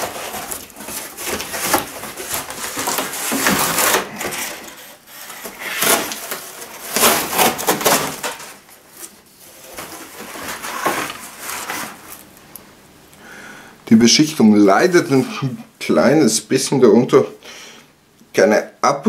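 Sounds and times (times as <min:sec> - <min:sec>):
knife sawing cardboard: 0:00.0 - 0:08.2.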